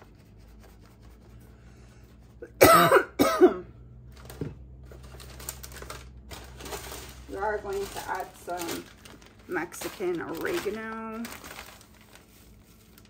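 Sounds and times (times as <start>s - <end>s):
person coughing: 2.4s - 3.7s.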